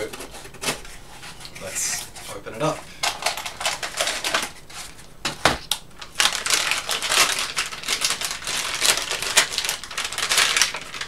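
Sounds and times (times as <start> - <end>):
packaging crinkling and rustling: 2.6 - 11.0.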